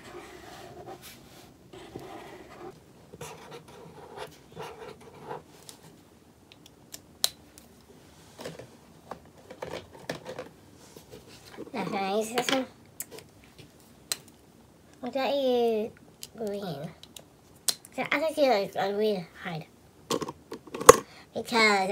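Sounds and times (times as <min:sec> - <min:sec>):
scratching and rustling on paper: 0:00.0 - 0:06.0.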